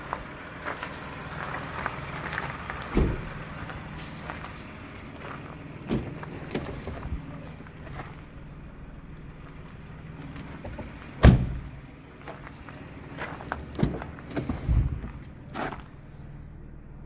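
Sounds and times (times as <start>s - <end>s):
car door shutting with a thud: 2.9s - 3.3s, 11.2s - 11.7s.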